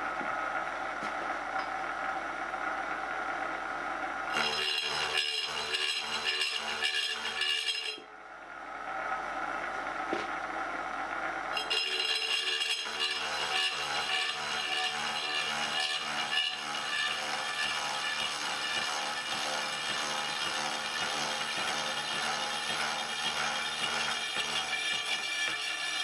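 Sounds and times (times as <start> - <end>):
milling machine cutting metal: 4.3 - 8.0, 11.5 - 26.0.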